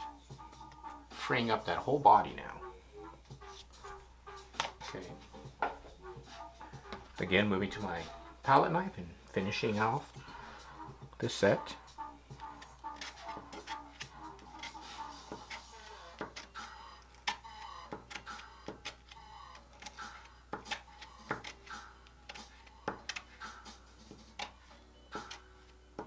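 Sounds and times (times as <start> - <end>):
palette knife scraping and tapping: 12.3 - 24.6.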